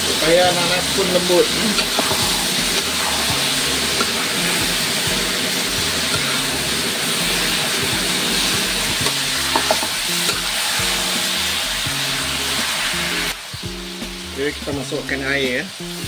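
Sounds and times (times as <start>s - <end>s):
food sizzling in a wok: 0.0s - 16.0s
ladle knocking against wok: 9.0s - 10.4s.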